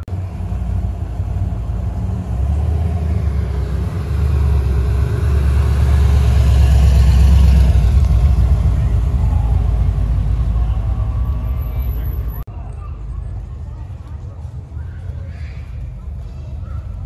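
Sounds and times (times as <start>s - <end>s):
car engine rumbling past: 0.1s - 12.5s.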